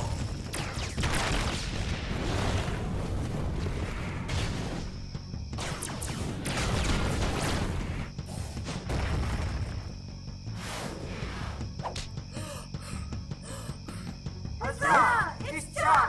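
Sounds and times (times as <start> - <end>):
dramatic background music: 0.0 - 16.0
stone blocks crashing and booming: 8.7 - 9.9.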